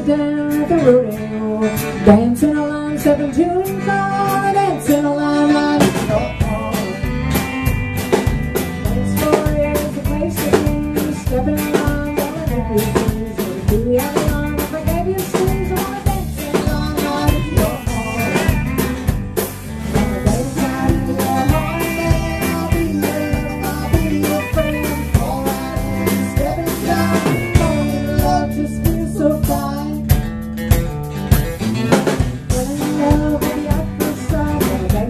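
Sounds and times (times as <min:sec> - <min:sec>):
country band playing: 0:00.0 - 0:35.0
steady drum beat: 0:05.8 - 0:35.0.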